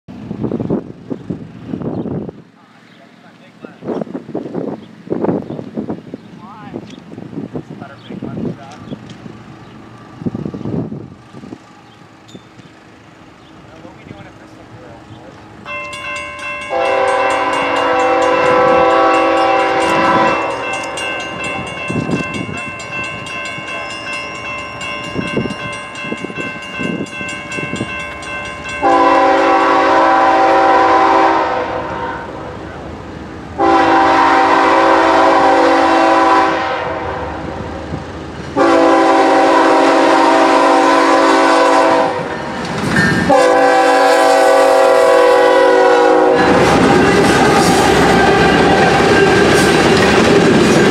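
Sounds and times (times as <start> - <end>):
train rumbling: 0.1 - 50.9
locomotive air horn blasts: 16.7 - 21.1, 28.8 - 32.6, 33.6 - 37.7, 38.6 - 42.4, 43.2 - 49.5.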